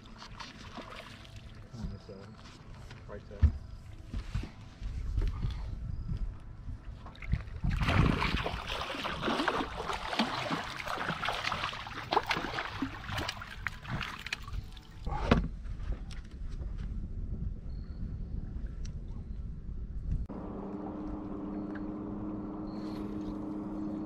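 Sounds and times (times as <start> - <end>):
fish splashing in water: 7.6 - 14.9.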